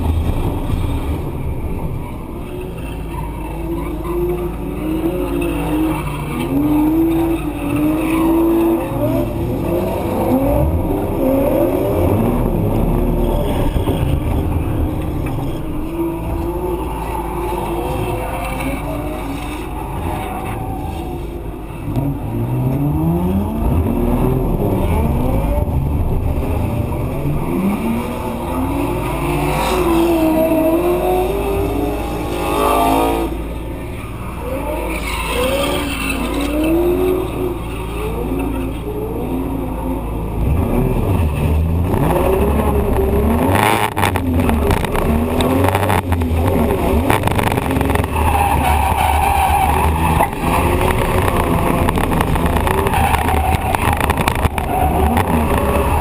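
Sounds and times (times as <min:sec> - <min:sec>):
car engine revving: 0:00.0 - 0:56.0
tyres sliding: 0:02.8 - 0:23.1, 0:40.9 - 0:56.0.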